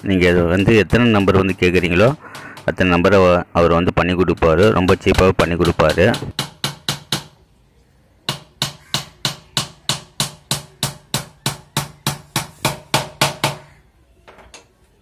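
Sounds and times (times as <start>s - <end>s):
hammer striking wood: 0.5s - 2.9s, 4.3s - 7.4s, 8.3s - 13.8s.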